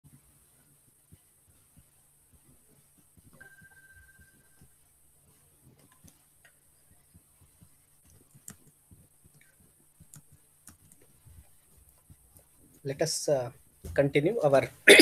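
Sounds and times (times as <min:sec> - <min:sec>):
faint clicks: 0:08.0 - 0:11.1.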